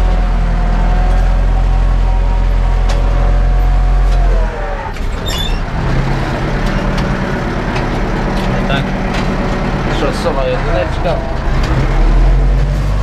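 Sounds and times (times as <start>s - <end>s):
tractor diesel engine running: 0.0s - 13.0s
metallic squeal: 1.2s - 6.2s.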